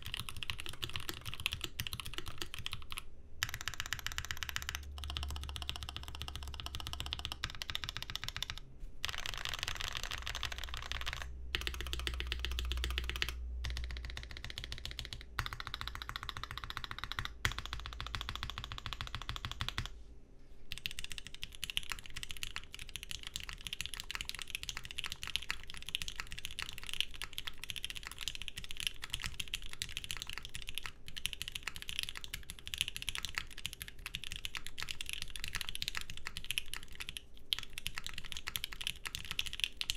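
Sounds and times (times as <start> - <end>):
mechanical keyboard typing: 0.0 - 19.9, 20.7 - 39.9.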